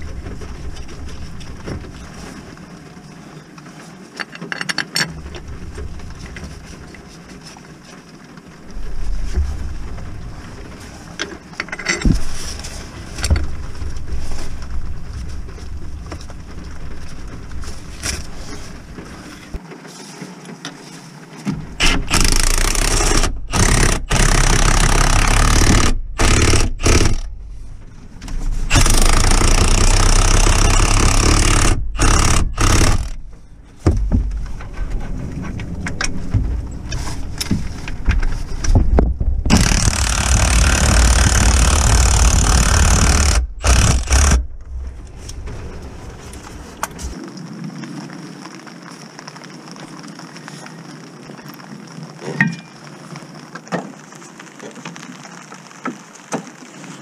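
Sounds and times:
power tool bursts: 0:21.8 - 0:27.3, 0:28.7 - 0:33.2, 0:39.5 - 0:44.4.

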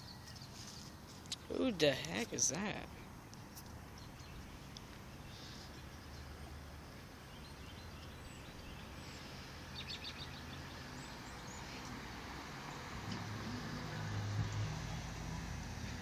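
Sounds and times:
bird chirping: 0:00.0 - 0:02.6, 0:03.7 - 0:12.1
car moving slowly: 0:00.0 - 0:16.0.

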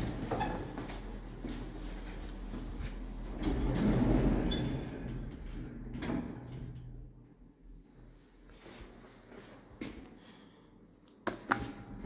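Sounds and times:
lift sliding doors rumbling: 0:00.0 - 0:07.6.

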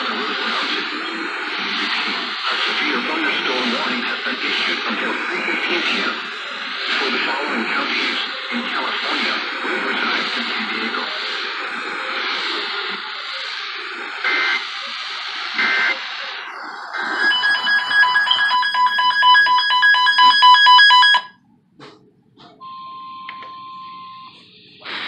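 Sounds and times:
radio hiss: 0:00.0 - 0:22.6, 0:24.2 - 0:25.0
rapid electronic alarm beeping: 0:14.2 - 0:14.7, 0:15.5 - 0:16.0, 0:16.9 - 0:21.4
short beeps: 0:17.0 - 0:21.4, 0:22.6 - 0:24.5.

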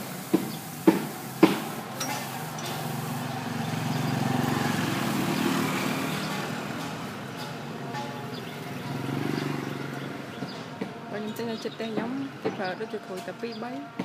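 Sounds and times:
sharp knocks: 0:00.3 - 0:01.7
vehicle engine passing by: 0:01.8 - 0:12.6.

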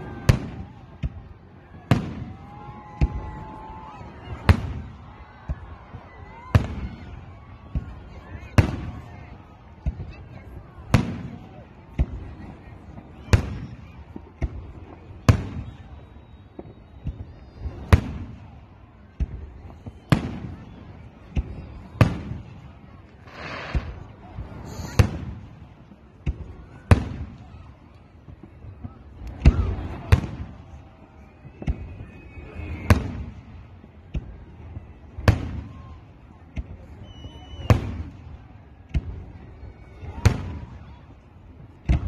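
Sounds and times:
firework shells bursting: 0:23.3 - 0:24.0.

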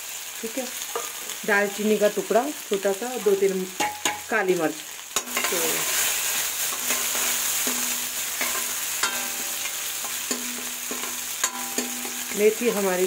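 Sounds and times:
spices sizzling in hot oil: 0:00.0 - 0:13.0
metal spoon scraping pan: 0:00.9 - 0:01.8, 0:05.2 - 0:13.0.

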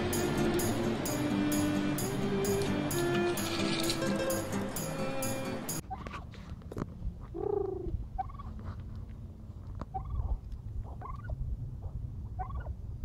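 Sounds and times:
turkey calling: 0:07.4 - 0:08.5, 0:09.9 - 0:11.4, 0:12.4 - 0:12.7.

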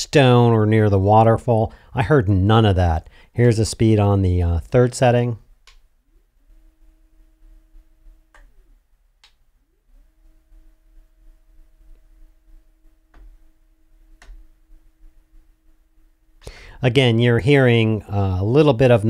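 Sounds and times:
sharp clicks: 0:05.6 - 0:05.9, 0:09.2 - 0:09.4.

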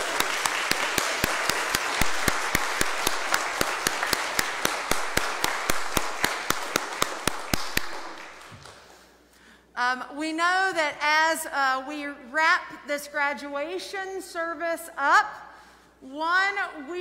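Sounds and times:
audience applauding: 0:00.0 - 0:08.9
close sharp hand claps: 0:00.0 - 0:09.0.

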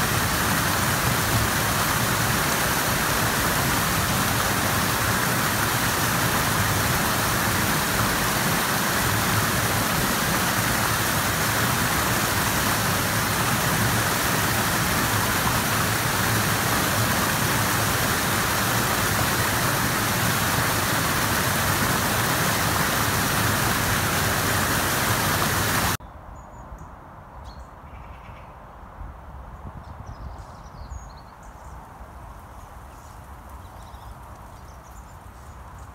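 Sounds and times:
river water rushing: 0:00.0 - 0:26.0.

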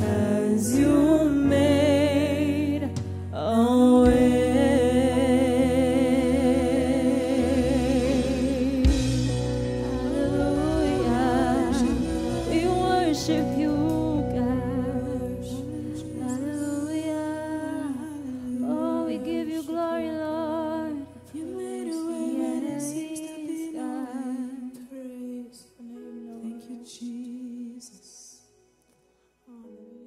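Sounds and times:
sung worship melody: 0:00.0 - 0:30.0
sustained low notes: 0:04.0 - 0:19.6.

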